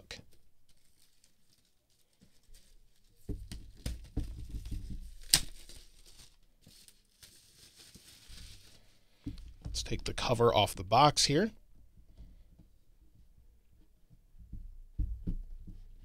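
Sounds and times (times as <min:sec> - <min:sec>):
plastic shrink wrap tearing and crinkling: 0:00.7 - 0:08.9.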